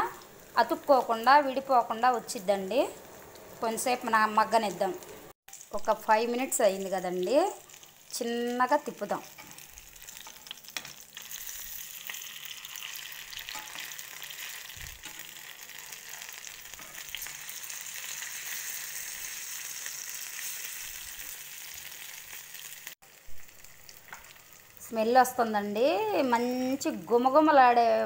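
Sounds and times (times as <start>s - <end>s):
fish sizzling in oil: 0.0s - 27.7s
metal spatula turning food: 8.6s - 21.9s.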